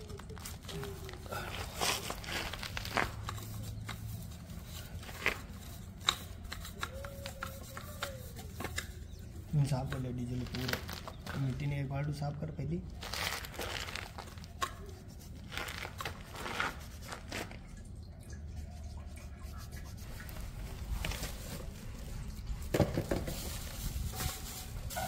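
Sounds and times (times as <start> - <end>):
liquid sloshing and scrubbing: 15.1 - 22.7.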